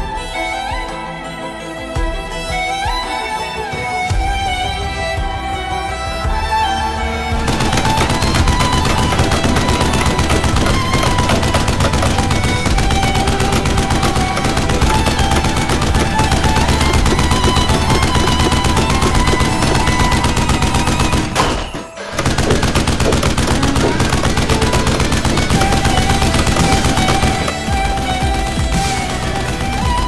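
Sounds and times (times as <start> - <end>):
background music: 0.0 - 30.0
rapid automatic gunfire: 7.4 - 30.0.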